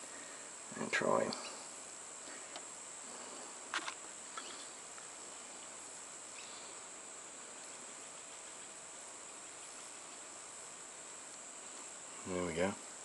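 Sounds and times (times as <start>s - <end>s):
steady high-pitched hiss: 0.0s - 13.0s.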